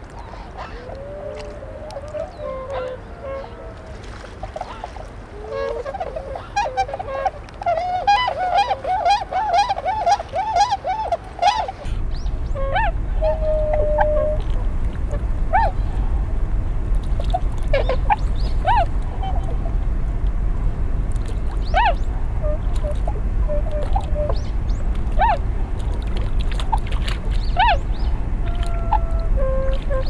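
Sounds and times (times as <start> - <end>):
swans hooting calls: 0.0 - 16.3, 17.0 - 19.8, 21.2 - 30.0
steady low rumble: 11.1 - 30.0.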